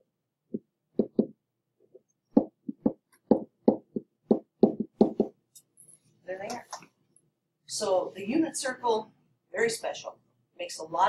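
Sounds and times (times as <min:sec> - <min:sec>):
pen tapping on writing surface: 0:01.0 - 0:01.4, 0:02.4 - 0:05.4.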